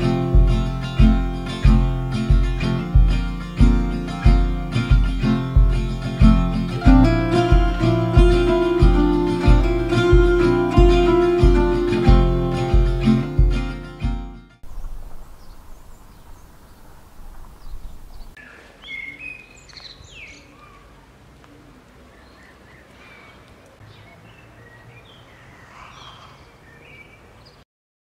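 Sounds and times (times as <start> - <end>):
low steady background noise: 14.6 - 27.6
songbirds chirping: 14.6 - 27.6.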